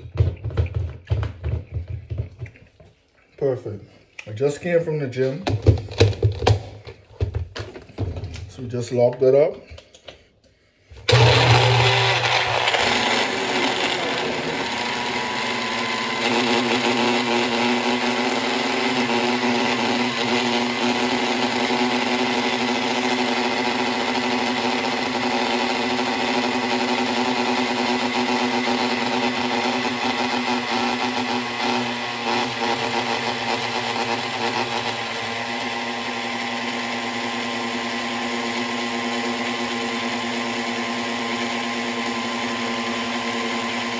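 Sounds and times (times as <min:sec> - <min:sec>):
blender motor whirring: 0:11.0 - 0:43.9.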